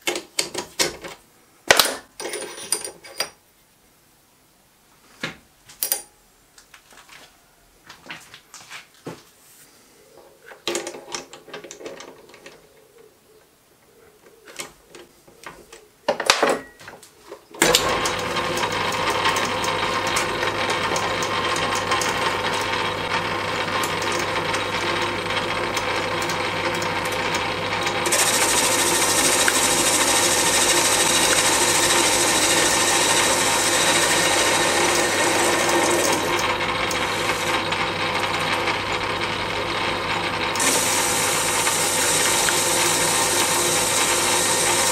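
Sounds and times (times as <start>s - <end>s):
lathe motor humming: 17.6s - 44.9s
lathe tool cutting hiss: 28.0s - 38.6s, 40.6s - 44.9s.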